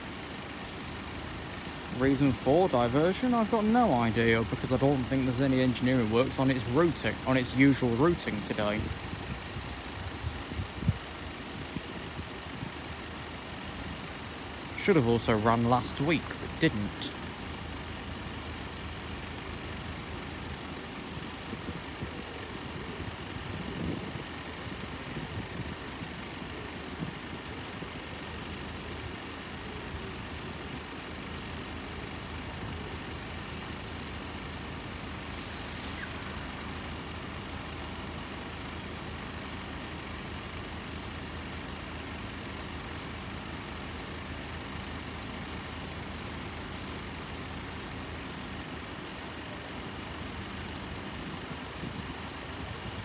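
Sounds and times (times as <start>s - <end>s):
engine drone: 0.0s - 53.0s
faint high whine: 34.9s - 38.8s.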